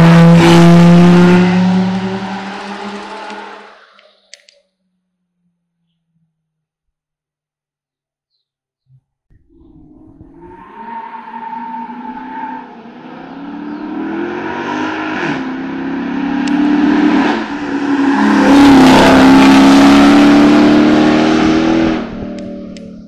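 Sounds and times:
race car engine accelerating: 0.0s - 3.9s, 11.4s - 23.0s.

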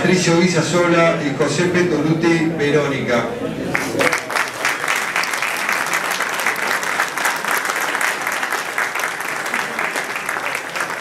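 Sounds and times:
crowd applauding: 3.7s - 11.0s.

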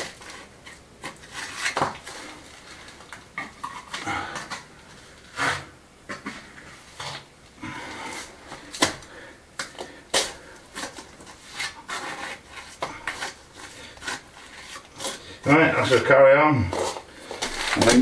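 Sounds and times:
trowel scraping stone: 0.1s - 2.4s, 10.8s - 15.2s.

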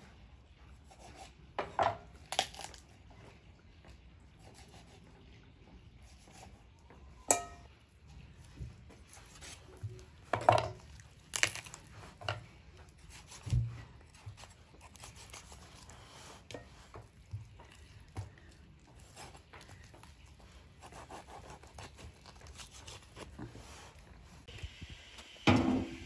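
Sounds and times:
skin and joints tearing: 2.2s - 2.8s, 10.8s - 12.2s, 20.9s - 23.5s.

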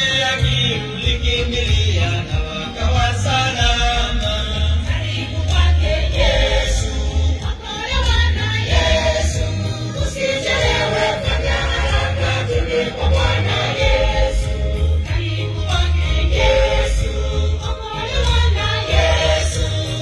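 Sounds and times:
heavy bass beat: 0.0s - 7.3s
choir singing gospel song: 0.0s - 20.0s.

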